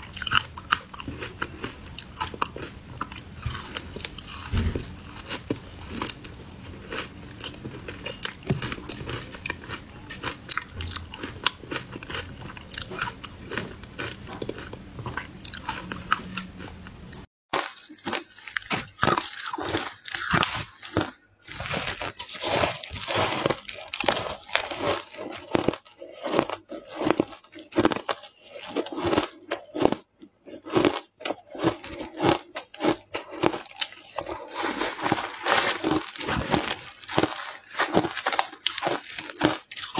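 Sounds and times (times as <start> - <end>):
ice being bitten and chewed: 0.0 - 39.9.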